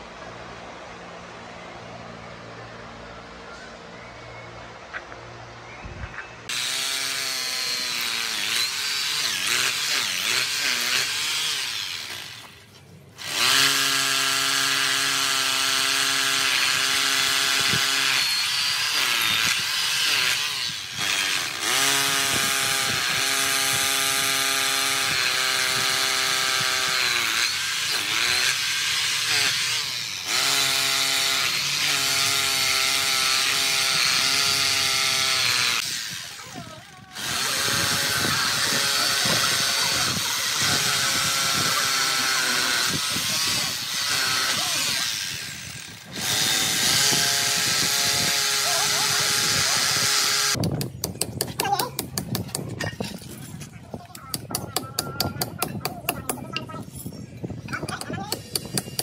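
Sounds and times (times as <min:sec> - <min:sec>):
hammer drill boring into brick: 0:06.5 - 0:12.6, 0:13.2 - 0:51.2.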